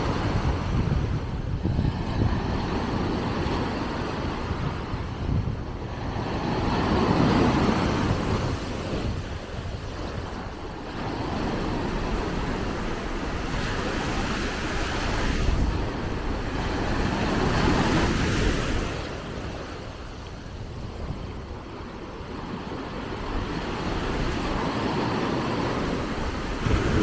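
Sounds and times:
wind rumbling on microphone: 0:00.0 - 0:27.0
surf breaking on shore: 0:06.1 - 0:22.2, 0:22.8 - 0:27.0.

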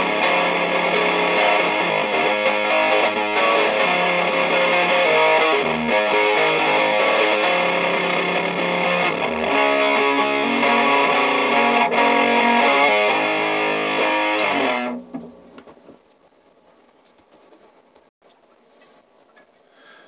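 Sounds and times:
electric guitar power chords: 0:00.0 - 0:15.1.

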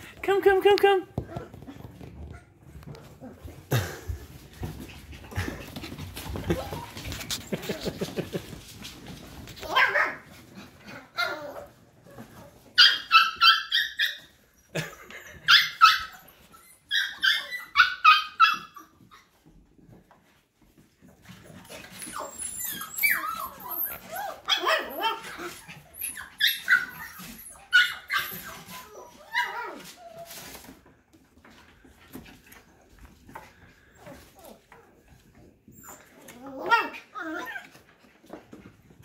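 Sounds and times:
puppies yipping and barking: 0:10.9 - 0:19.6, 0:21.6 - 0:30.8.

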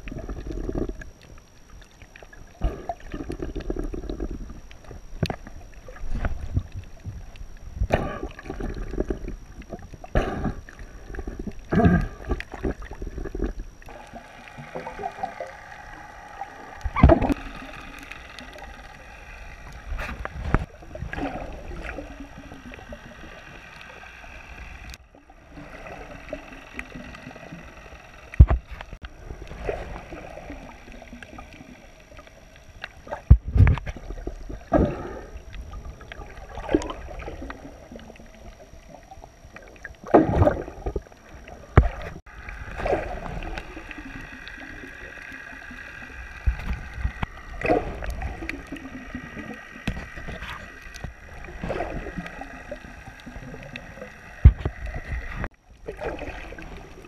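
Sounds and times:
murky underwater hiss: 0:00.0 - 0:57.0
water swishing and gurgling: 0:00.0 - 0:57.0.

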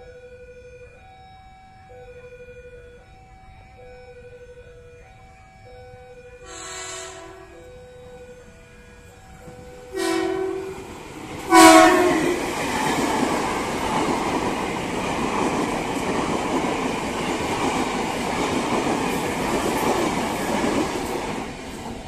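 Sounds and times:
train horn blasts: 0:06.4 - 0:08.0, 0:09.8 - 0:10.9, 0:11.5 - 0:12.5
train wheels rushing on rails: 0:06.4 - 0:22.0.

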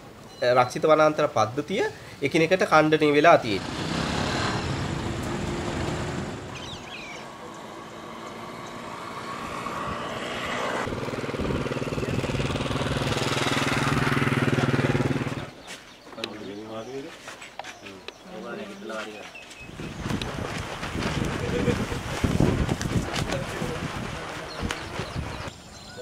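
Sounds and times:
vehicle engine humming: 0:03.4 - 0:15.6.

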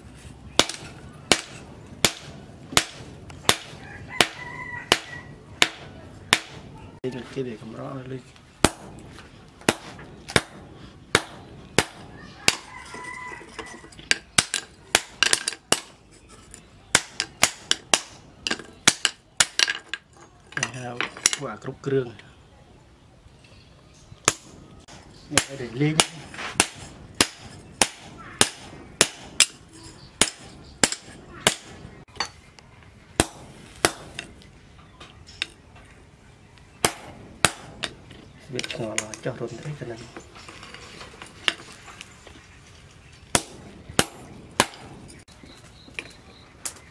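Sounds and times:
hammer striking hot steel on anvil: 0:00.6 - 0:06.6, 0:08.6 - 0:09.0, 0:33.2 - 0:34.3
hammer striking metal punch: 0:08.6 - 0:09.0, 0:09.7 - 0:12.6, 0:36.8 - 0:37.9.

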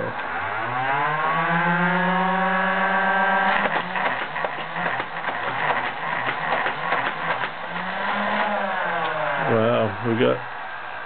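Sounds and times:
toy blaster motors whining: 0:00.0 - 0:11.0
rapid dart firing clatter: 0:03.4 - 0:09.1.

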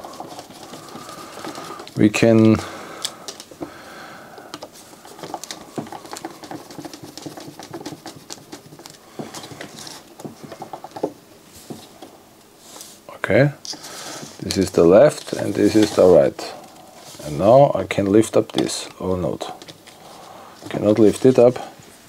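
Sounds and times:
parts handled in hand: 0:00.0 - 0:03.7, 0:13.6 - 0:20.0.

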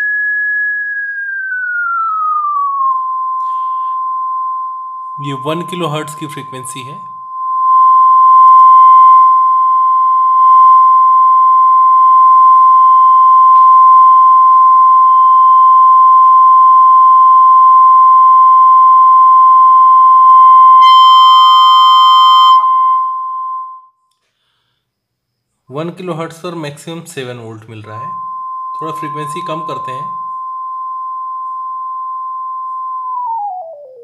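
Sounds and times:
sine test tone from loudspeaker: 0:00.0 - 0:24.6, 0:25.7 - 0:34.0
harsh buzzy distorted tone: 0:00.7 - 0:15.8, 0:27.1 - 0:31.8.

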